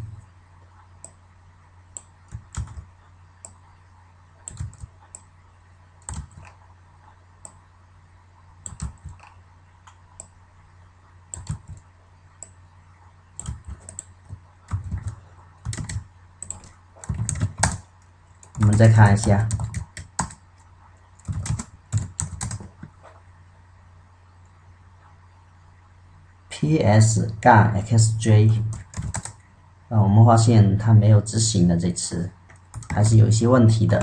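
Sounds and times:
computer keyboard typing: 1.9s - 3.7s, 4.4s - 5.3s, 6.0s - 6.6s, 8.6s - 10.4s, 11.3s - 12.6s, 13.4s - 23.2s, 28.7s - 29.4s, 32.5s - 33.2s.

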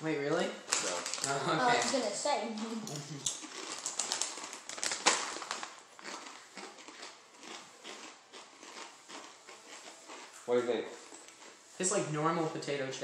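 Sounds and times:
chip bag rustling: 0.7s - 2.0s, 3.2s - 12.0s
chips being chewed: 0.7s - 2.0s, 2.6s - 12.0s.

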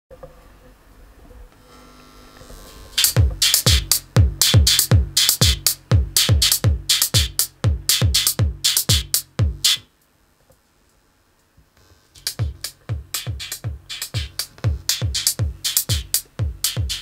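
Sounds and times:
kick drums: 3.0s - 9.8s, 12.2s - 17.0s
hi-hat hits: 3.0s - 9.9s, 12.2s - 17.0s.

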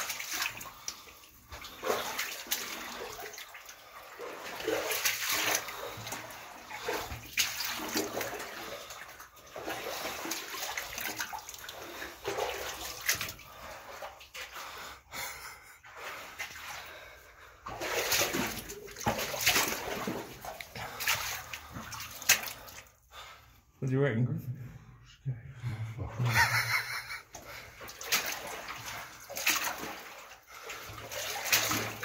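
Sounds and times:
footsteps splashing through water: 0.0s - 14.6s, 17.6s - 22.9s, 26.6s - 32.0s.

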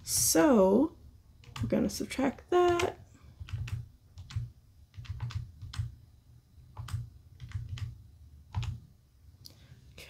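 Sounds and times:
calculator keys tapping: 1.4s - 6.0s, 6.7s - 8.8s.

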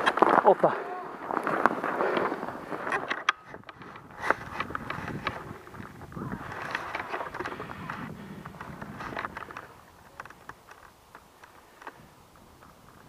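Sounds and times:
footsteps crunching through snow: 0.0s - 3.1s.

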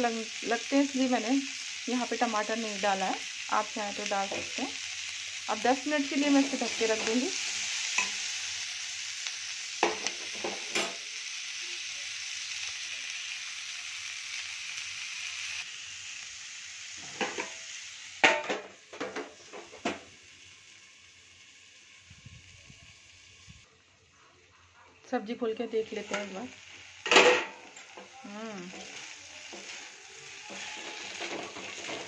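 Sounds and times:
vegetables sizzling in oil: 0.0s - 23.7s, 25.1s - 32.0s
steel spoon scraping a pan: 6.2s - 8.5s, 28.7s - 32.0s
metal plate clanking on pan: 17.0s - 17.6s, 18.2s - 20.0s, 27.0s - 28.1s, 30.4s - 32.0s.

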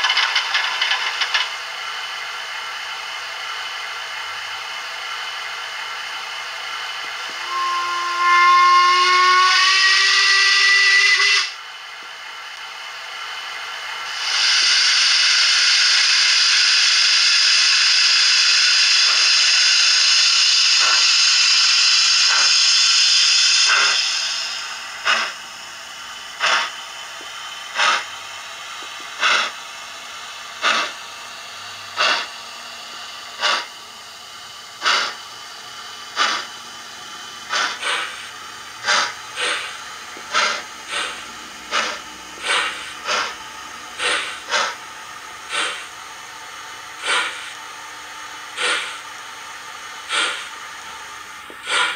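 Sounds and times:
steam locomotive chuffs: 0.0s - 51.9s
model train whistle: 7.3s - 11.6s
steam hiss: 13.2s - 25.7s, 26.3s - 36.6s, 37.2s - 51.9s.

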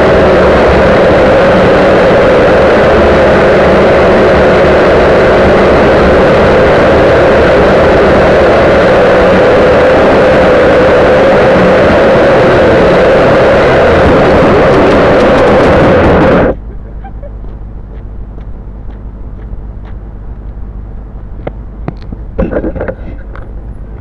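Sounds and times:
quadcopter propellers buzzing: 0.0s - 18.0s.

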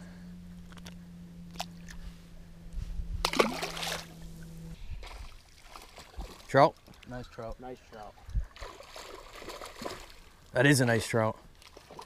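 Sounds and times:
fish splashing into water: 3.2s - 4.1s, 5.0s - 6.5s, 8.5s - 10.2s.

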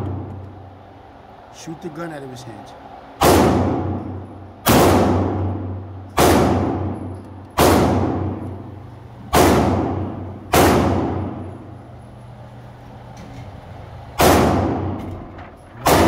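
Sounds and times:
pistol shots echoing indoors: 3.2s - 11.8s, 14.1s - 15.2s, 15.8s - 16.0s.

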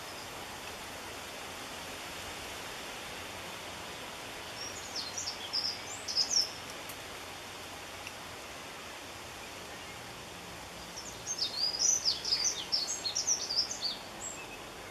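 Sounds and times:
steady hiss: 0.0s - 14.9s
wren chirps: 4.4s - 6.7s, 10.8s - 14.9s.

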